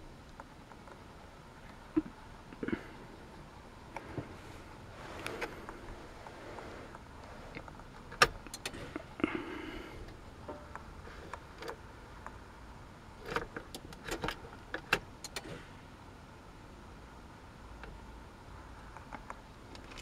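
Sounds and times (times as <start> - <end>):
dashboard switches clicking: 7.6 - 8.9, 13.3 - 15.6.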